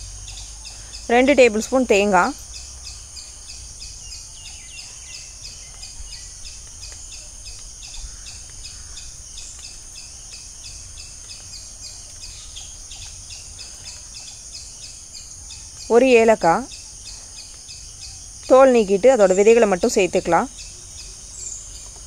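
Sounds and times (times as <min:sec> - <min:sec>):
birds chirping: 0:00.0 - 0:22.0
insects chirping: 0:00.0 - 0:22.0.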